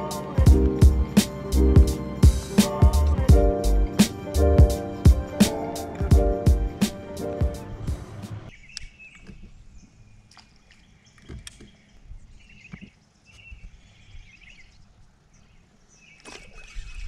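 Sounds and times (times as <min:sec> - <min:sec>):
background music: 0:00.0 - 0:08.5.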